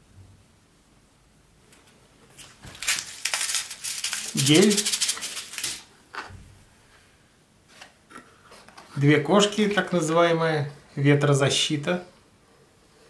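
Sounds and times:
packaging crinkling and clicking: 0:02.4 - 0:06.3.

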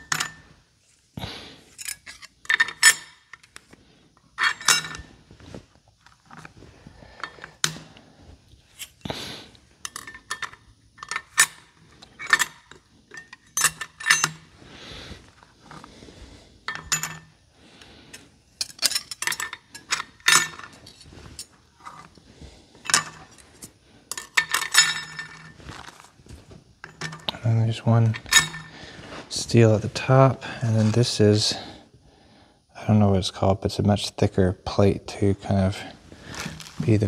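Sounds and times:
metal clutch plates clinking: 0:01.8 - 0:03.5, 0:04.4 - 0:05.1, 0:09.8 - 0:14.5, 0:16.7 - 0:17.3, 0:18.6 - 0:22.1, 0:22.9 - 0:25.7, 0:26.8 - 0:28.8.

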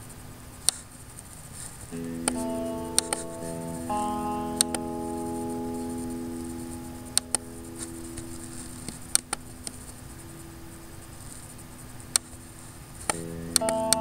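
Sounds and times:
soft guitar music: 0:01.9 - 0:14.0
computer mouse clicks: 0:02.3 - 0:03.3.

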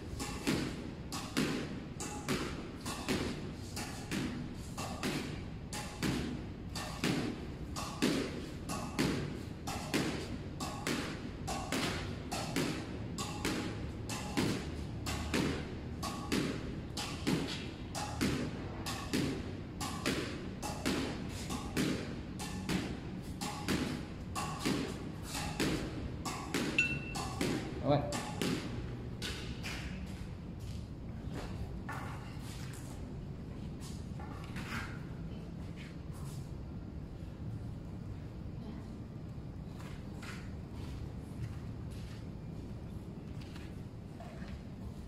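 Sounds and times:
squash ball hitting wall: 0:00.1 - 0:29.6
squash racket striking ball: 0:00.1 - 0:29.8.

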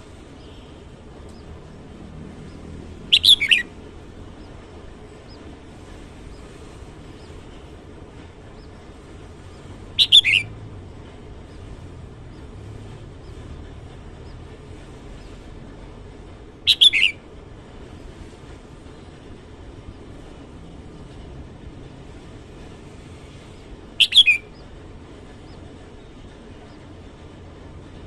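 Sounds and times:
bulbul singing: 0:00.4 - 0:05.4, 0:09.5 - 0:10.5, 0:16.6 - 0:17.2, 0:23.6 - 0:24.7.

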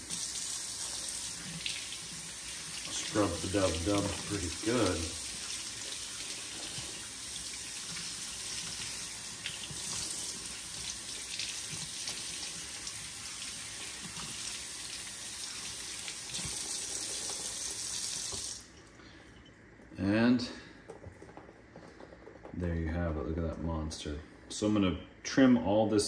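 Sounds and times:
faucet running into sink: 0:00.0 - 0:18.6.

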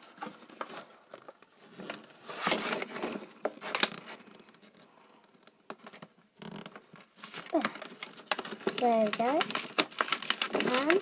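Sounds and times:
packaging crinkling and rustling: 0:00.0 - 0:04.8, 0:05.4 - 0:11.0.

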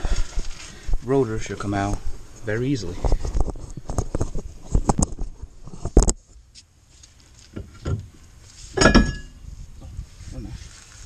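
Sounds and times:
loud metallic clank with ring: 0:08.8 - 0:09.4.

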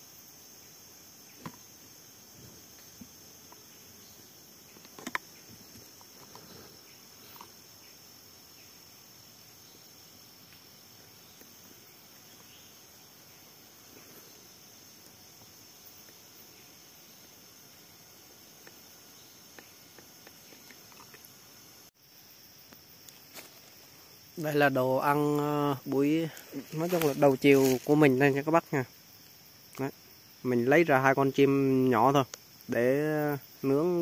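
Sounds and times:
forest insects chorus: 0:00.0 - 0:34.0
faint ticks: 0:32.2 - 0:32.5.

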